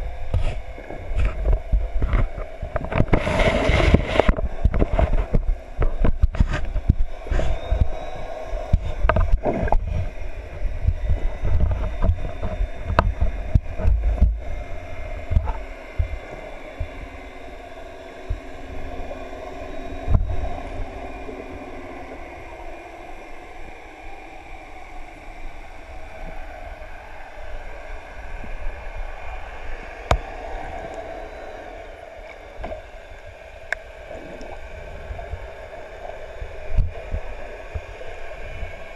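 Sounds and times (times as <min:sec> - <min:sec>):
steady hum with held tones: 0:00.0 - 0:38.9
underwater rumble of moving water: 0:00.0 - 0:38.9
underwater clicks and knocks: 0:00.3 - 0:07.1, 0:08.7 - 0:10.1, 0:10.9 - 0:14.5.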